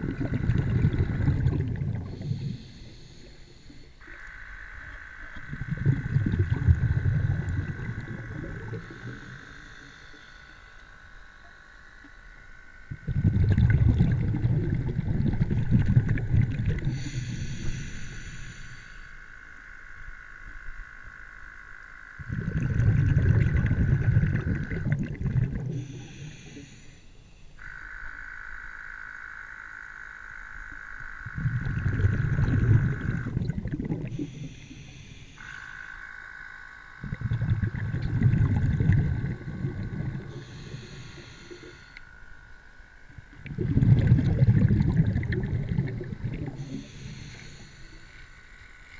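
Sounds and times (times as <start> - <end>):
muffled underwater water rumbling: 0.0 - 10.2, 12.9 - 17.8, 22.2 - 26.2, 31.2 - 34.8, 36.9 - 41.8, 43.0 - 48.0
faint high whine: 0.0 - 48.9.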